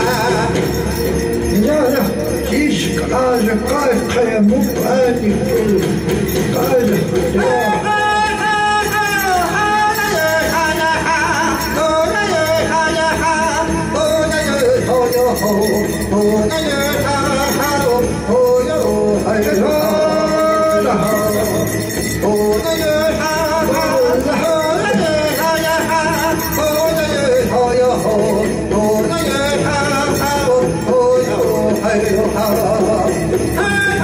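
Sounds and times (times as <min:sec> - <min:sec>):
jingling bells: 0:00.0 - 0:34.0.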